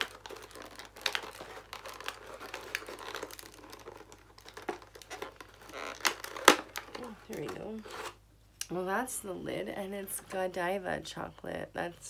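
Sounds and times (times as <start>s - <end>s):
plastic crinkling: 0.0s - 8.2s.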